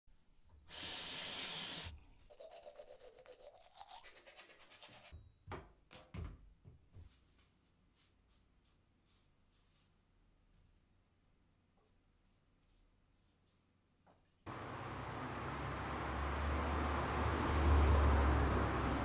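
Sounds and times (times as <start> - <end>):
water pouring into container: 1.1 - 4.4.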